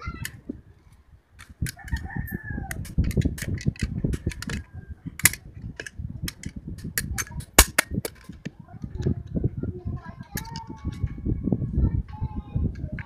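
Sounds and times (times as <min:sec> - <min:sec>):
metal clicks and clinks: 0:01.4 - 0:08.4, 0:10.3 - 0:11.0.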